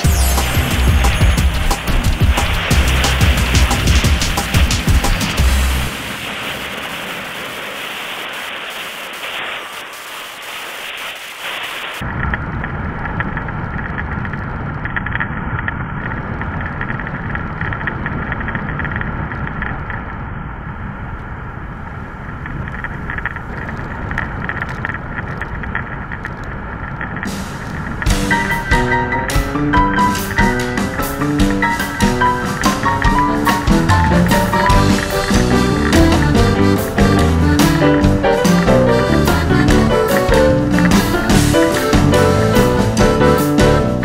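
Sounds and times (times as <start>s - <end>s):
wind rushing over microphone: 0.8s - 44.0s
motorcycle engine running: 27.3s - 44.0s.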